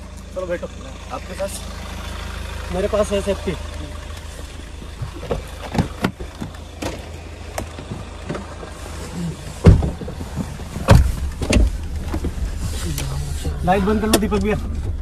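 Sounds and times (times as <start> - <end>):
car engine idling: 0.0 - 15.0
car door thumps shut: 5.0 - 8.6, 9.6 - 12.5.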